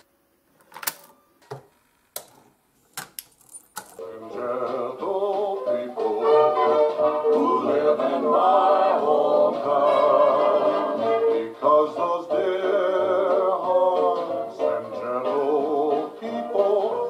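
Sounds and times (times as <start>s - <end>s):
music with singing from cassette: 4.0s - 17.0s.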